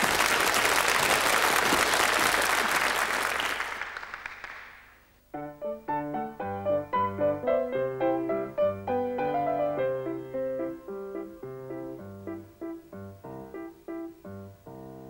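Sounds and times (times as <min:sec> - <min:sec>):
studio audience applauding: 0:00.0 - 0:05.0
piano playing: 0:05.3 - 0:15.0.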